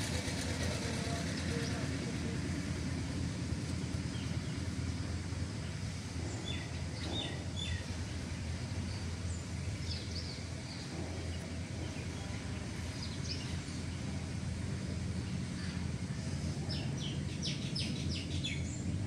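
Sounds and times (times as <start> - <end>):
low background rumble: 0.0 - 19.0
small birds chirping: 3.6 - 14.3, 15.1 - 19.0.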